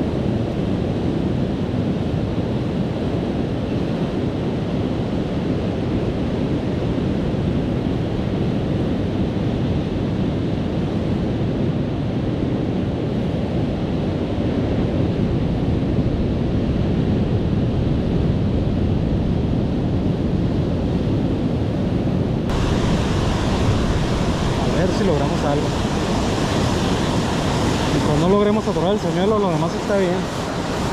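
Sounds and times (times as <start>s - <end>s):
wind buffeting microphone: 0.0s - 30.9s
sea surf washing on shore: 20.4s - 30.9s.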